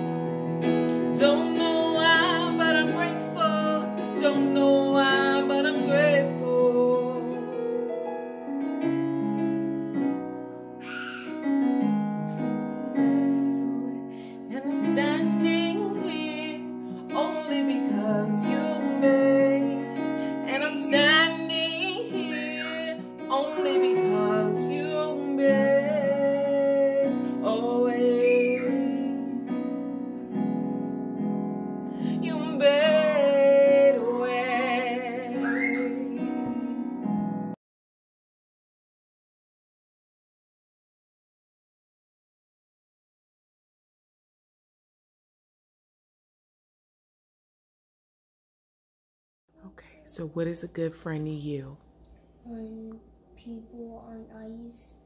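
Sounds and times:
woman singing a worship song: 1.0 - 7.6, 13.0 - 29.6, 32.0 - 37.0.

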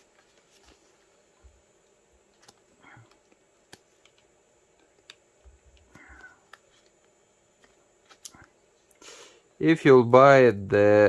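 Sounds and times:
tape backing peeling rustle: 0.0 - 1.2.

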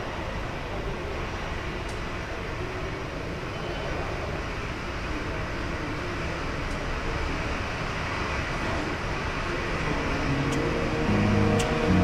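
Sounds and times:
jet engines rushing: 9.7 - 12.0.

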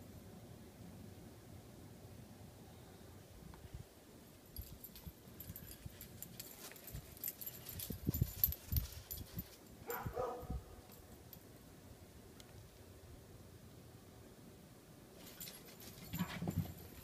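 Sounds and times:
dog barking: 9.8 - 10.8.

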